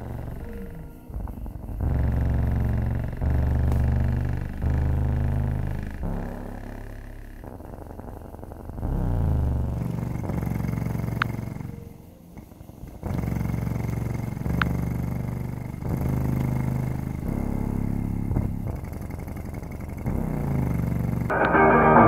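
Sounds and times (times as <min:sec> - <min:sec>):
deep bass notes from subwoofer: 0:00.0 - 0:07.9, 0:08.7 - 0:10.9.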